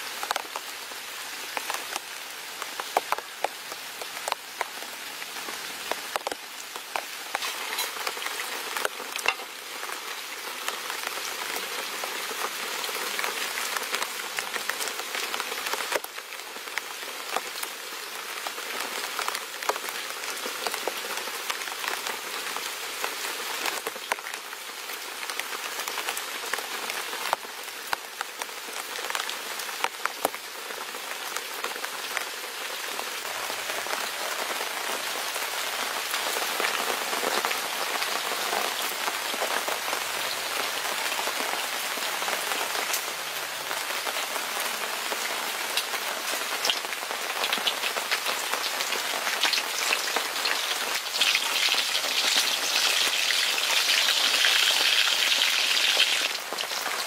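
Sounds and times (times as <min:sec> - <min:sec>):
food sizzling in hot oil: 0:07.3 - 0:10.0, 0:46.6 - 0:57.0.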